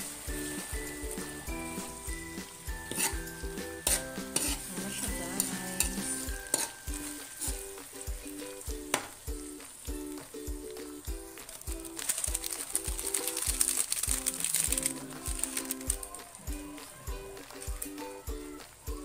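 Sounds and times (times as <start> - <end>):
paste sizzling in hot oil: 0.0 - 18.2
metal spoon scraping a wok: 2.8 - 8.1.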